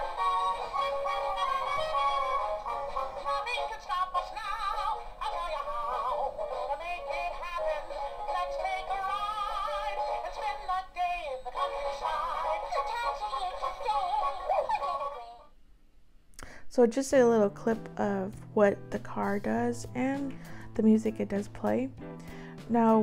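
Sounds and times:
song from small toy speaker: 0.0s - 15.5s.

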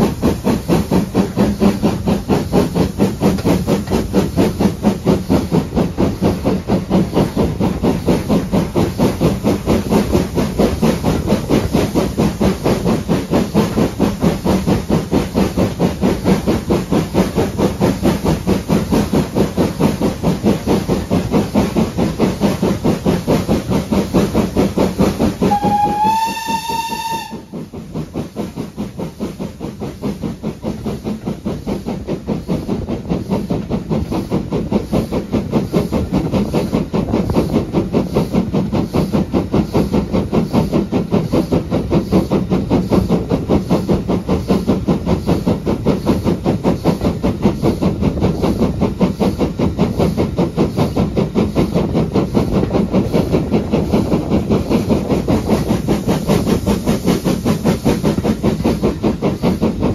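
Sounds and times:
steam locomotive exhaust beats: 0.0s - 59.9s
steam whistle blast: 25.4s - 27.5s.

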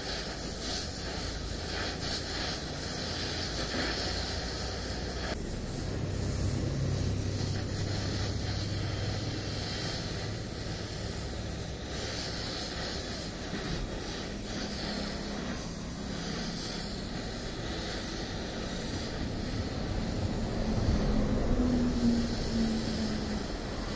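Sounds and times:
welding torch flame hissing: 0.0s - 23.9s.

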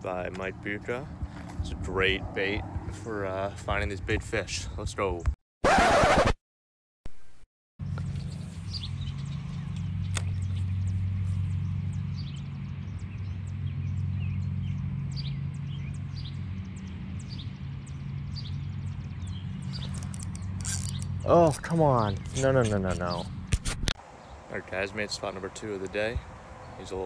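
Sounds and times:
small birds chirping: 7.8s - 27.0s
sharp click: 9.7s - 10.4s, 19.8s - 24.0s.

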